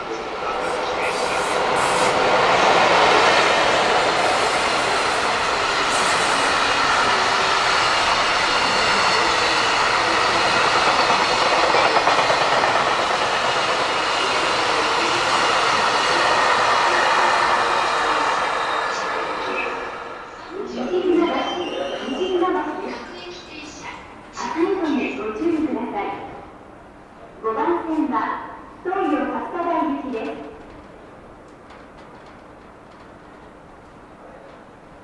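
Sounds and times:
freight train clattering over rail joints: 1.6s - 16.6s, 30.4s - 33.7s.

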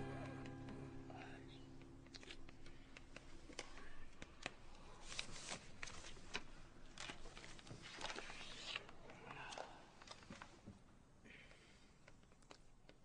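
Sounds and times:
paper rustling and scratching: 3.2s - 10.5s.

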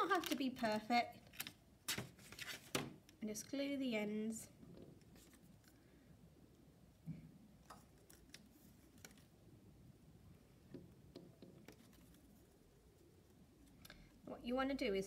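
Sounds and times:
paper card clicks and rustles: 7.7s - 9.3s.

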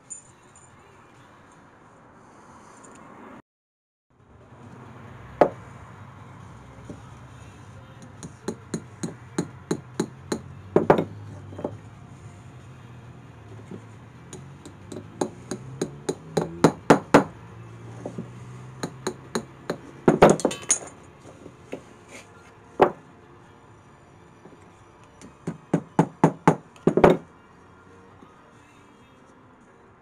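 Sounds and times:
hammer tapping nails into wood: 8.0s - 11.8s, 13.7s - 17.3s, 18.0s - 20.5s, 25.2s - 27.3s.

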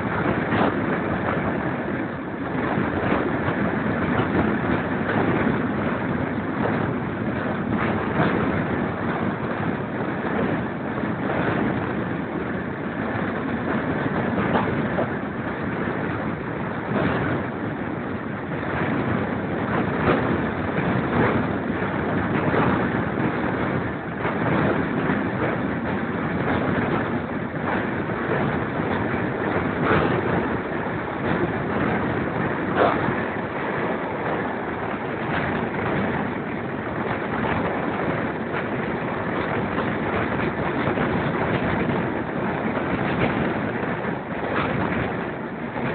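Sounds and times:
knocks from train running gear: 0.0s - 1.7s, 2.5s - 45.9s
train rushing at speed: 0.0s - 45.9s
wind on microphone: 0.0s - 45.9s.

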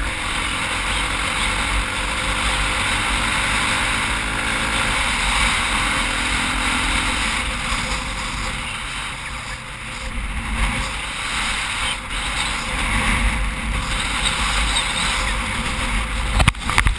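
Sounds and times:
dirt bike engine running: 0.0s - 16.9s
wind noise on camera: 0.0s - 16.9s.

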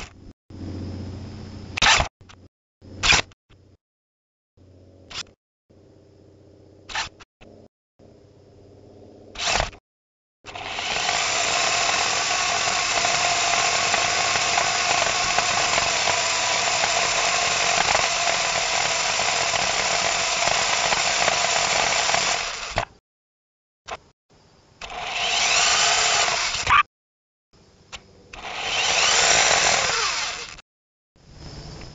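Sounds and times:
toy robot motors whirring: 1.8s - 2.1s, 6.9s - 7.2s, 10.5s - 22.9s, 24.8s - 26.9s, 28.4s - 30.6s.

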